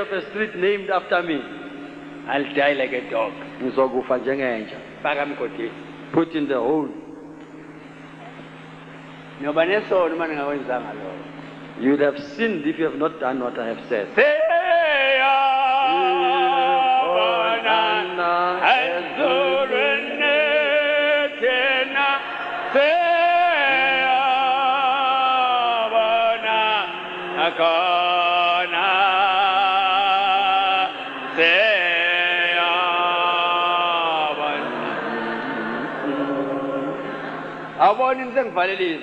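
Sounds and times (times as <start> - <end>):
low held drone tone: 0.0 - 39.0
person singing with vibrato: 13.8 - 37.8.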